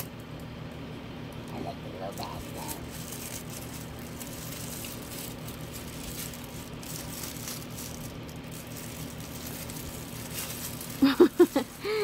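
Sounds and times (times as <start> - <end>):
low room hum: 0.0 - 12.0
paper wrapper crinkling: 2.1 - 12.0.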